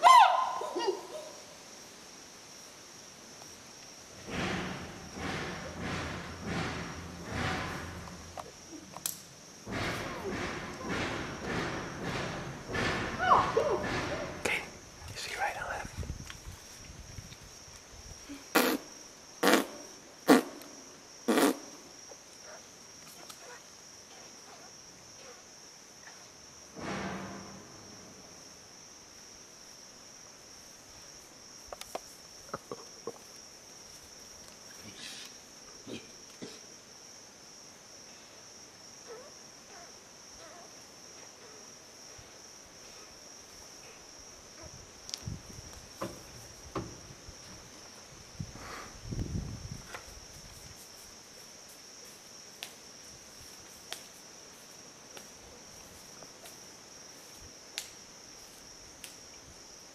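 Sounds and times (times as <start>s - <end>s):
low thumps: 4.2s - 8.5s, 9.6s - 14.9s.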